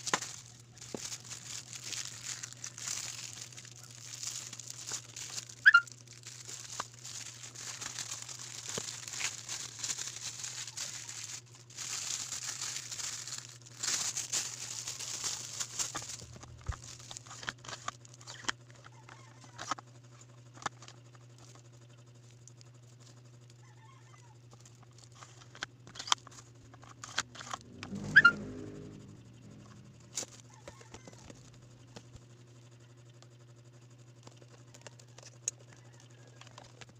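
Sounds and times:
low hum: 0.0s - 18.9s, 25.0s - 35.7s
plastic packaging crinkling: 0.0s - 19.8s, 24.5s - 27.7s, 29.6s - 32.2s.

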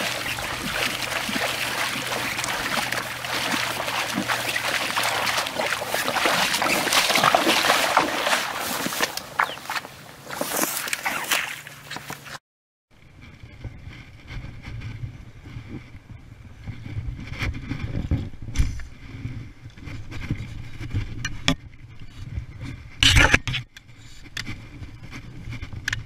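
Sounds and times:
water sloshing from wading: 0.0s - 12.4s
continuous low rumble: 13.0s - 26.0s.

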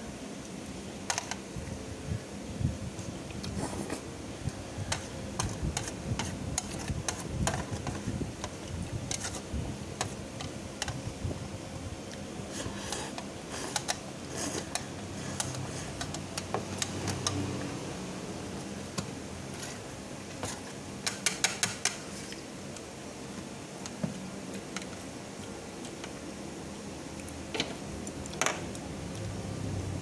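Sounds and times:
chopsticks clicking on metal tray: 14.6s - 17.4s, 21.0s - 22.0s.

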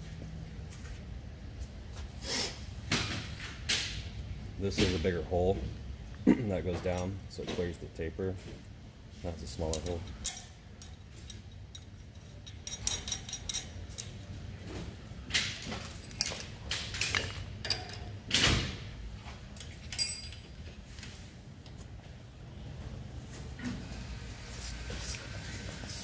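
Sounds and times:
ringing metal clink: 7.0s - 7.4s, 9.6s - 14.2s, 19.9s - 20.6s
metal parts clicking and knocking: 9.6s - 14.2s, 15.3s - 18.5s, 19.6s - 20.6s.

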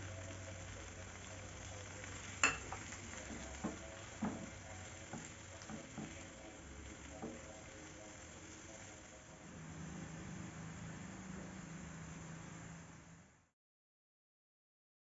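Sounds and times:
vegetables sizzling in a wok: 0.0s - 13.5s
spatula knocking and scraping wok: 2.4s - 7.6s.

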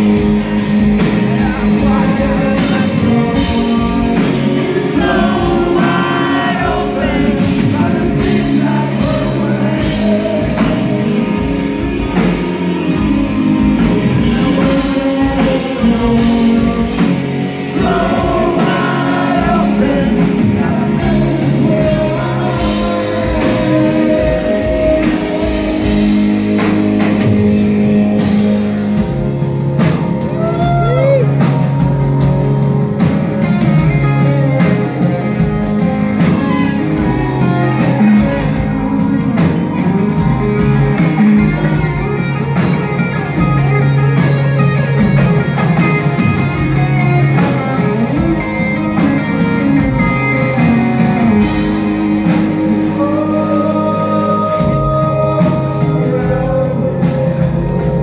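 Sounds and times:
live rock band playing: 0.0s - 58.0s
person singing: 1.2s - 12.3s, 12.9s - 26.7s, 30.2s - 32.0s, 33.5s - 42.7s, 46.1s - 58.0s.

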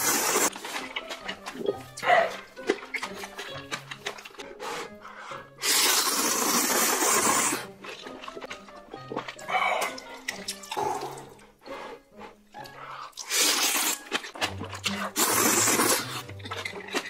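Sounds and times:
man slurping noodles: 0.0s - 0.5s, 4.4s - 17.0s
soft background music: 0.0s - 17.0s.

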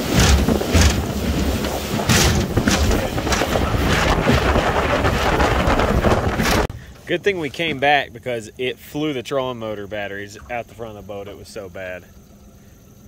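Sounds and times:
hull slapping waves: 0.0s - 6.7s
boat running through choppy water: 0.0s - 6.8s
heavy wind buffeting microphone: 0.0s - 7.0s.

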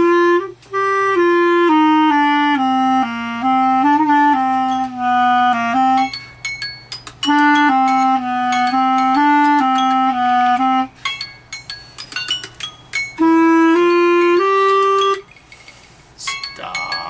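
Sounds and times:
clarinet playing: 0.0s - 6.4s, 7.2s - 11.0s, 13.1s - 15.3s.

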